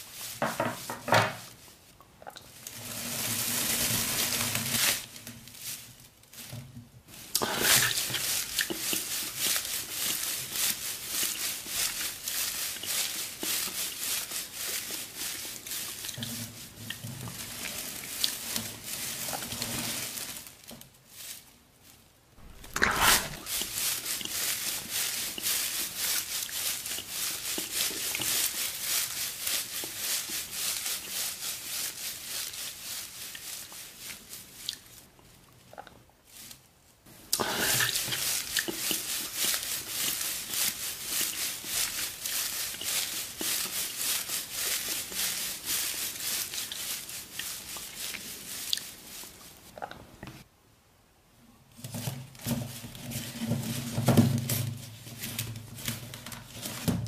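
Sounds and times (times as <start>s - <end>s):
dry straw rustling and crackling: 0.0s - 50.5s, 51.9s - 57.0s
cloth being handled: 22.4s - 23.7s.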